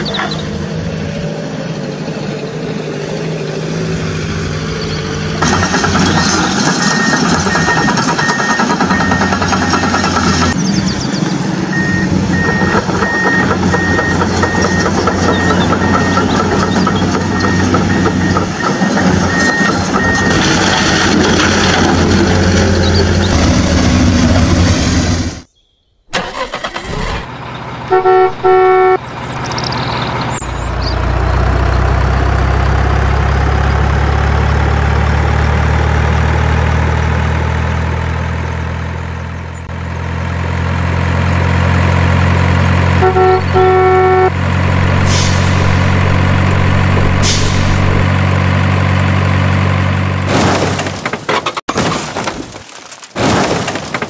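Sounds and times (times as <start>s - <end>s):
heavy truck engine running: 0.0s - 25.5s, 26.1s - 50.4s
air horn honks: 27.9s - 29.0s, 43.0s - 48.0s
loud noisy crash: 44.5s - 48.2s.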